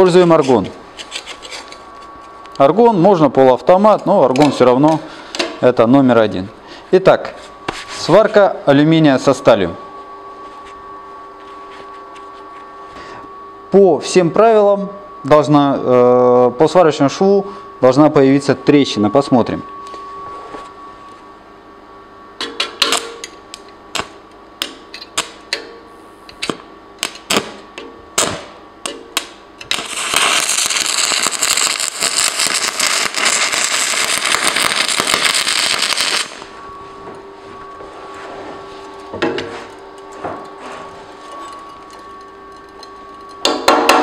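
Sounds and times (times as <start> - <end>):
faint steady hum: 0.0 - 44.0
welding arc crackling and hissing: 26.3 - 36.6
welding arc cracking: 26.4 - 27.6, 28.2 - 36.4.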